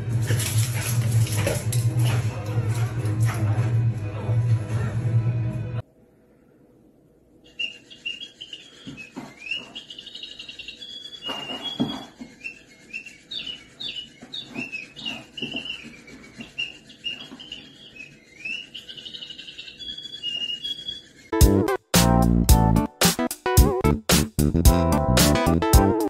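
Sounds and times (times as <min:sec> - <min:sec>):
electronic toy chirps: 0:07.4 - 0:21.4.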